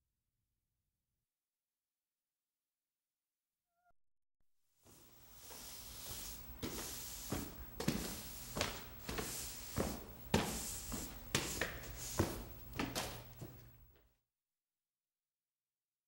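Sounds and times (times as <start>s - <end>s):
broom sweeping wooden floor: 4.8s - 13.6s.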